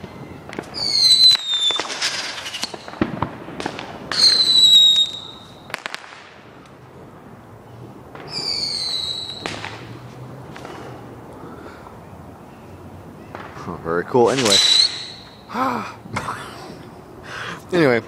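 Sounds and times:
whistling firework shells: 0.0s - 6.8s, 8.1s - 10.0s, 13.2s - 15.6s
firework bangs and crackling: 0.0s - 11.2s, 13.2s - 15.5s.

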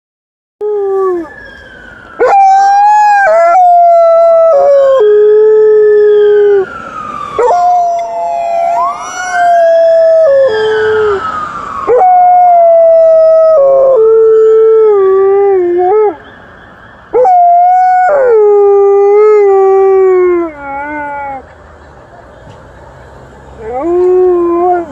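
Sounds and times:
faint siren wail: 0.6s - 21.5s, 23.0s - 24.9s
dog howling: 2.2s - 6.6s, 7.4s - 11.2s, 11.9s - 16.2s, 17.2s - 21.4s, 23.6s - 24.9s.

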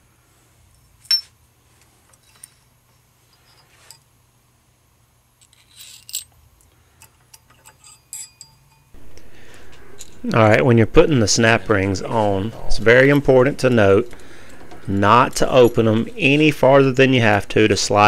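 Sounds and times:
faint low hum: 0.0s - 18.0s
steel parts clinking: 0.7s - 4.1s, 5.4s - 10.3s.

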